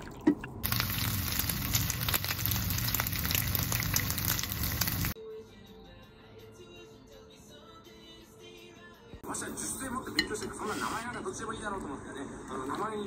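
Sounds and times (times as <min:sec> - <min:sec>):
bacon and egg sizzling: 0:00.6 - 0:05.2
faint background music: 0:05.2 - 0:13.0.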